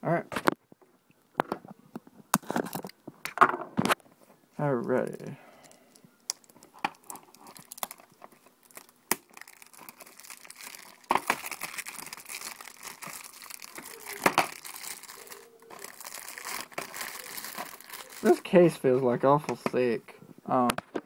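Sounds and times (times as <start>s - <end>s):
plastic shrink wrap tearing: 6.3s - 18.5s.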